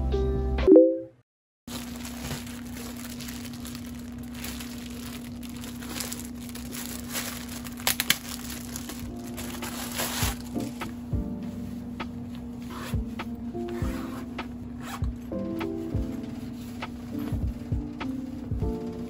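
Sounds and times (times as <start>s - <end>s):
sharp crackles: 1.7s - 10.9s
packaging crinkling and rustling: 1.7s - 11.0s
steady low hum: 1.7s - 19.0s.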